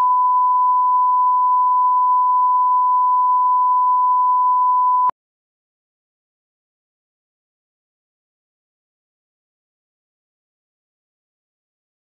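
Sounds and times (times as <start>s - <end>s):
steady pure test tone beep: 0.0s - 5.1s.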